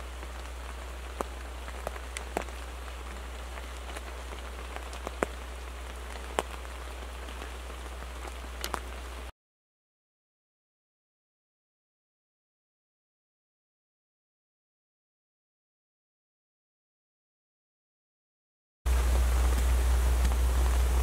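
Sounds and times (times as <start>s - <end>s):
rain hissing: 0.0s - 9.3s, 18.9s - 21.0s
raindrops ticking on a blind: 0.0s - 9.3s, 18.9s - 21.0s.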